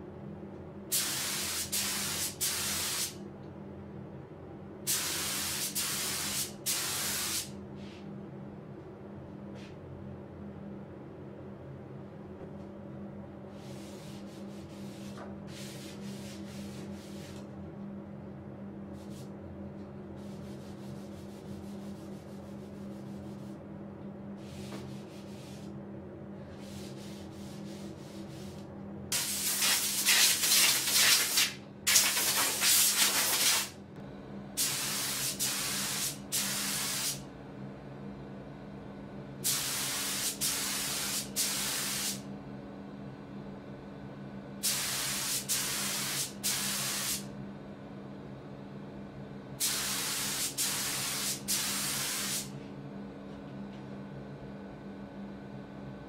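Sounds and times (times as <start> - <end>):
steady low hum: 0.0 - 56.0
spray gun hissing: 29.2 - 33.7, 44.6 - 47.2, 49.6 - 52.5.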